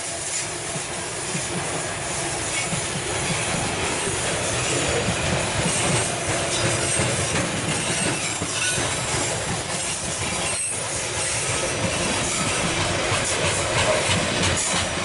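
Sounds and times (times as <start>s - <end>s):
train wheels rumbling on rails: 0.0s - 15.0s
high wheel squeal: 4.4s - 14.8s.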